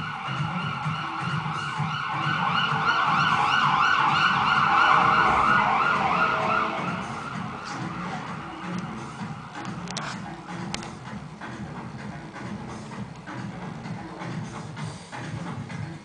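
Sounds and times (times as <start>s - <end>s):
siren wailing: 0.0s - 9.5s.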